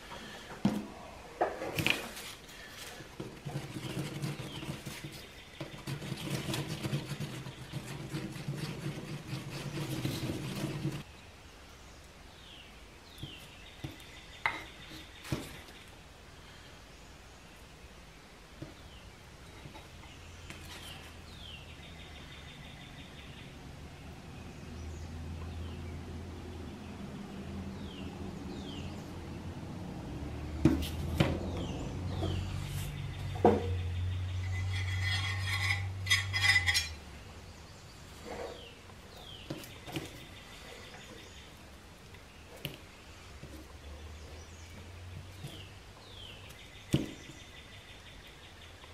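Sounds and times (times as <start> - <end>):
stick scraping and tapping: 1.5 - 11.1, 34.4 - 37.0.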